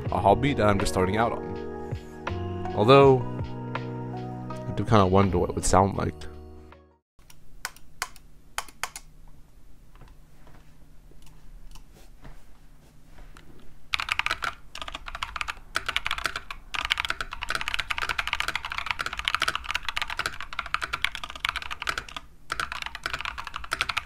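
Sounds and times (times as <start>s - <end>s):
fast typing on mechanical keyboard: 13.9s - 24.0s.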